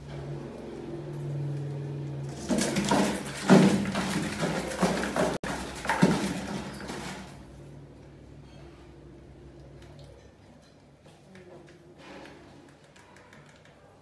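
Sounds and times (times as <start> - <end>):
rat dropping into bucket: 2.3 - 7.3.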